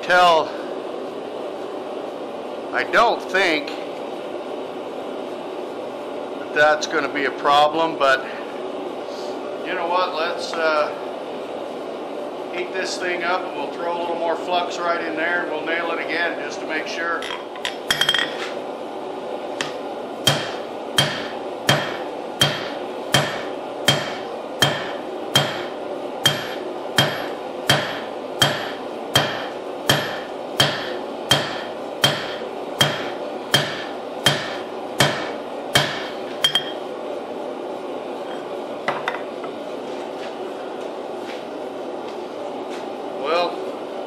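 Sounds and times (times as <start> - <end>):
hammer striking hot metal on anvil: 20.2 - 36.8.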